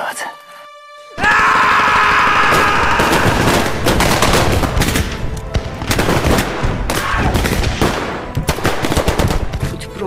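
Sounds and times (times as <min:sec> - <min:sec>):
soundtrack music: 0:00.0 - 0:10.0
machine gun and rifle fire: 0:05.9 - 0:09.5.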